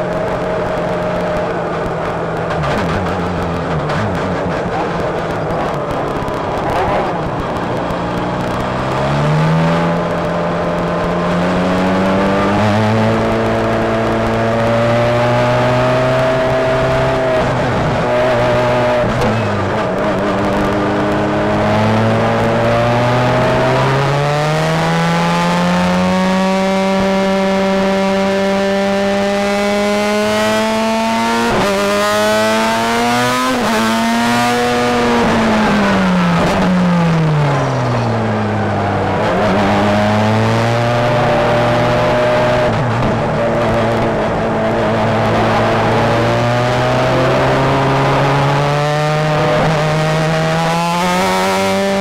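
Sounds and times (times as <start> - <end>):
race car engine at full throttle: 0.0 - 52.0.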